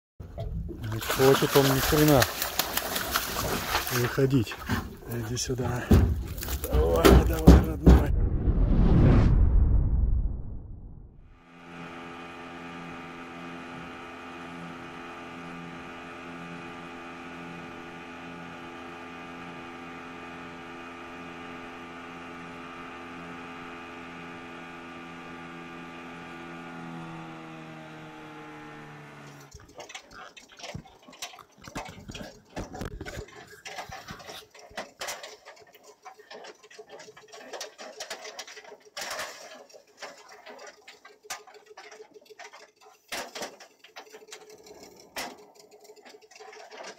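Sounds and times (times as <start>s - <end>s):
outboard motor running: 0.2s - 8.1s, 11.4s - 46.9s
net knocking against metal boat: 4.6s - 8.1s.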